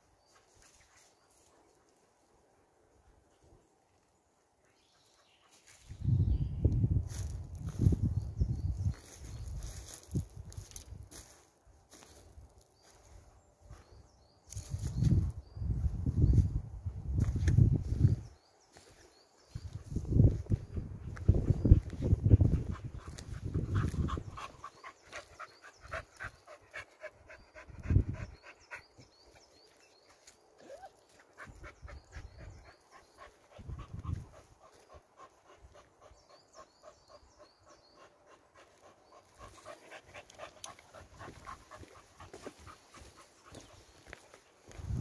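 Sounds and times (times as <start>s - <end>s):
dog panting rapidly: 31.4s - 43.5s.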